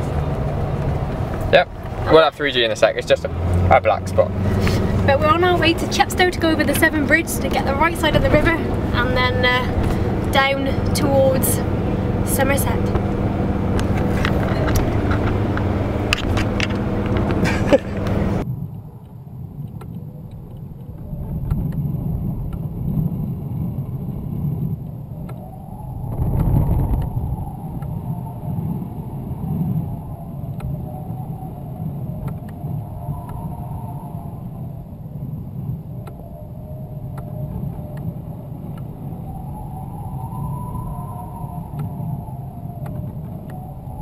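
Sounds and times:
low uneven rumble: 0.0s - 44.0s
road noise inside car: 0.0s - 44.0s.

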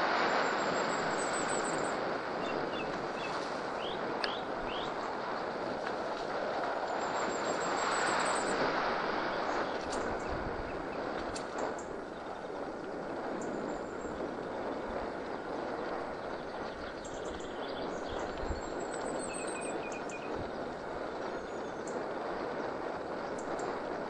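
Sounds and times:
bike tyres rumbling on dirt: 0.0s - 24.0s
faint bird chirps: 0.4s - 5.2s, 13.3s - 22.0s.

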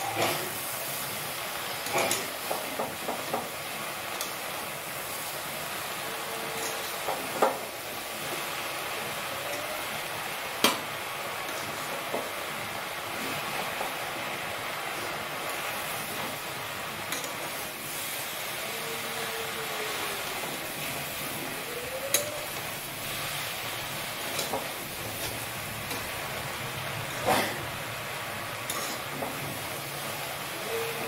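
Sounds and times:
food sizzling in a pan: 0.0s - 31.0s
metal spatula scraping pan: 28.6s - 29.3s.

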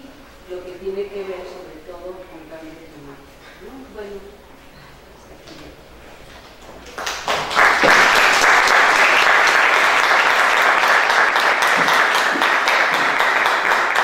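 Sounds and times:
audience applauding: 6.8s - 14.0s.

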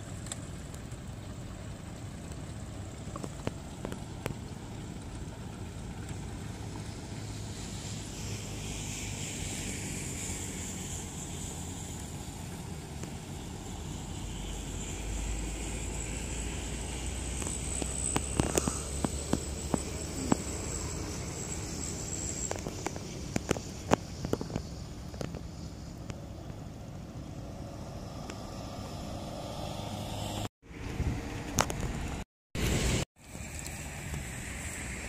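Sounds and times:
small engine running: 0.0s - 35.0s
wind noise on microphone: 29.8s - 35.0s.

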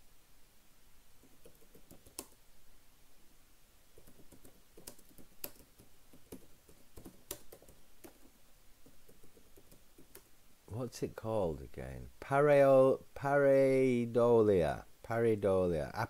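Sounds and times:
keyboard typing clicks: 1.3s - 2.4s, 4.0s - 10.3s.

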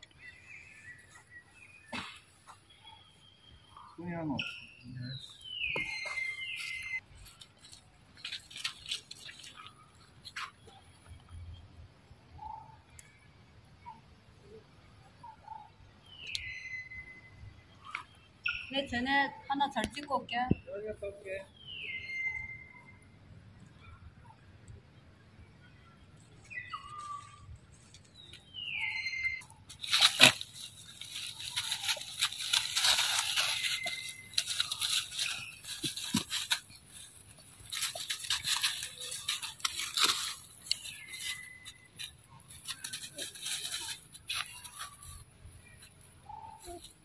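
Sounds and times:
dry leaves crunching and rustling: 5.6s - 9.8s, 29.7s - 46.0s.

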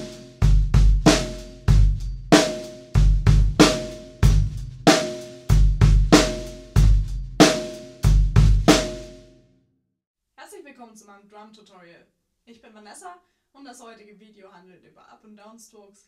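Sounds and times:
drum kit groove: 0.0s - 9.3s.

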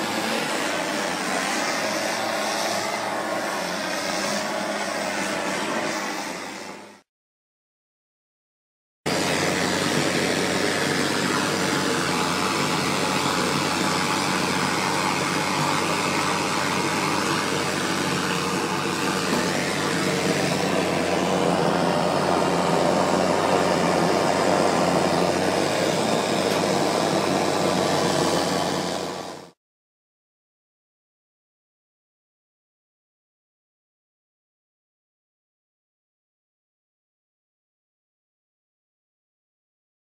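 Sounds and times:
gas blowtorch burning: 0.0s - 7.1s, 9.1s - 29.6s.

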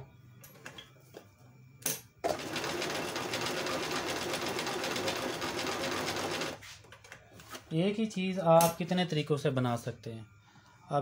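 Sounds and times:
sewing machine running: 2.2s - 6.6s.

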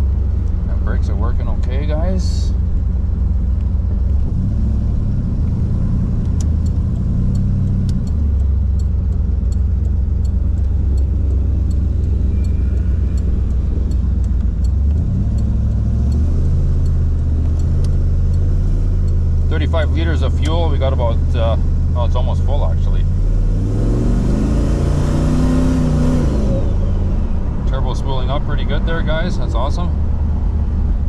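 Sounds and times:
car engine drone: 0.0s - 31.0s.

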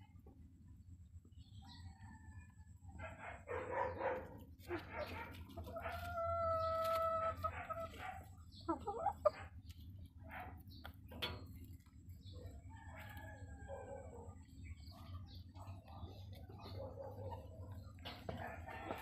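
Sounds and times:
chickens clucking: 1.6s - 19.0s
rooster crowing: 12.7s - 14.2s.

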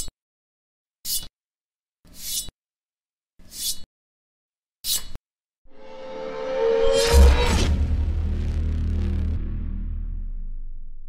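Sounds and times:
metallic knife swish: 1.1s - 1.3s, 3.5s - 3.9s
rising tonal music swell: 5.7s - 11.0s.

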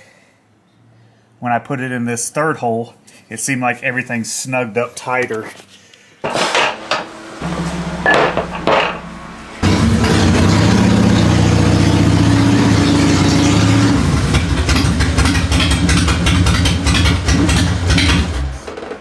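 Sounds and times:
motorcycle engine idling: 14.3s - 18.1s.

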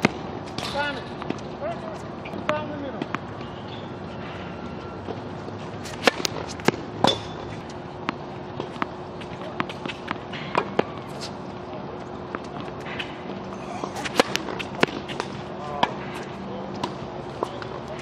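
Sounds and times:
tennis ball bouncing on court: 2.5s - 3.5s, 5.8s - 11.3s, 14.0s - 16.0s
racket hitting tennis ball: 5.8s - 11.4s, 13.9s - 17.6s.

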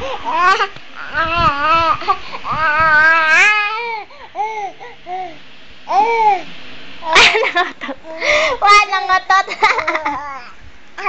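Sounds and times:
toddler laughing and babbling: 8.0s - 11.0s.

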